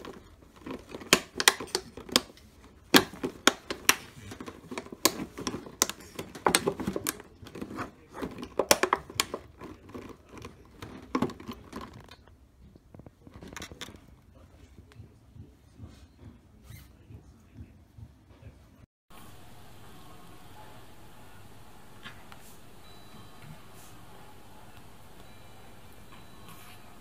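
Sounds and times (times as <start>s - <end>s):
plastic bottle crackling and popping: 0.0s - 13.9s.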